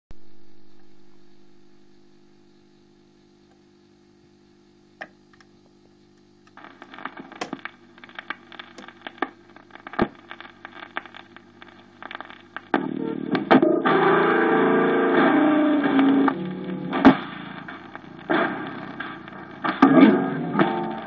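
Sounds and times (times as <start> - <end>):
record player humming: 0.2 - 21.0
vinyl crackle and clicks: 0.5 - 21.0
click: 5.0 - 6.6.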